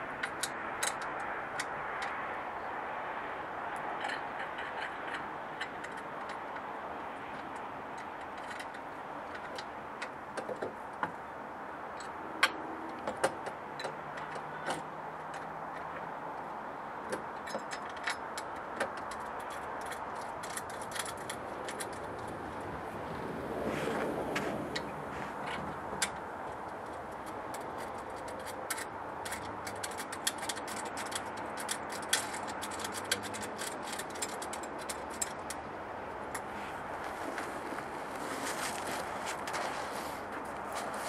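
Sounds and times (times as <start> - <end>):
metallic clicks of bolts handled: 0.2 - 2.2, 7.4 - 10.7, 17.1 - 22.4, 25.5 - 35.7.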